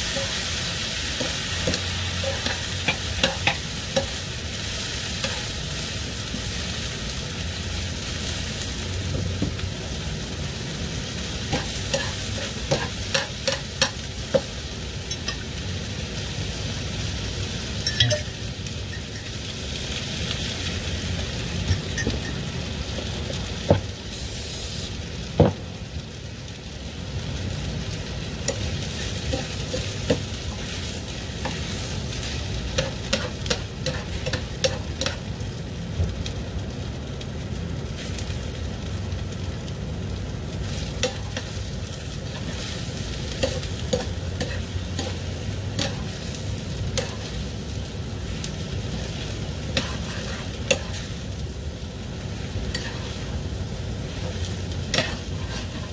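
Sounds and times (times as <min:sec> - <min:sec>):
food sizzling in a pan: 0:00.0 - 0:55.9
tongs clicking against a pan: 0:45.8 - 0:46.2, 0:49.8 - 0:51.0.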